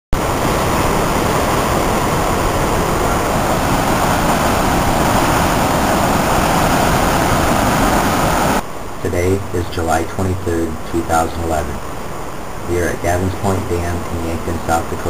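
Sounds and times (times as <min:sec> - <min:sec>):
water rushing through spillway: 0:00.2 - 0:08.6.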